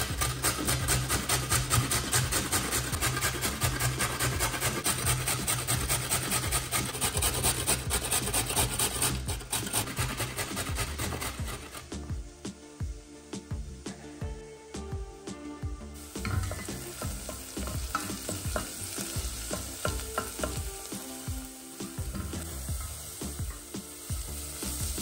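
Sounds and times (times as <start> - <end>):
carrot grated on metal grater: 0.0 - 11.9.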